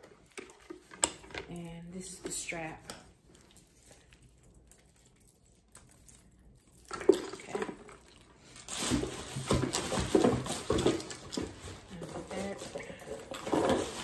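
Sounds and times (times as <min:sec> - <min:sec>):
packaging rustling and scraping: 0:07.0 - 0:14.0.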